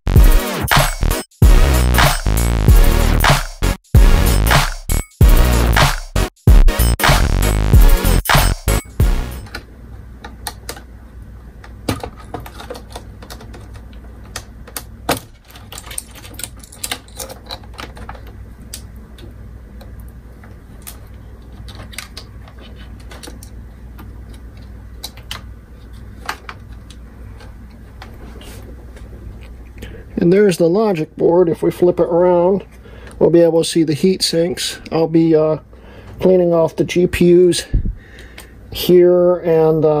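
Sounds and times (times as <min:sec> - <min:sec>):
clicks and taps on computer parts: 0:11.9 - 0:19.3.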